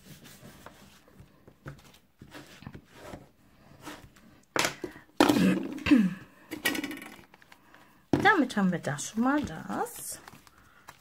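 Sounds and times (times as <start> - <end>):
paper rustling: 8.6 - 11.0.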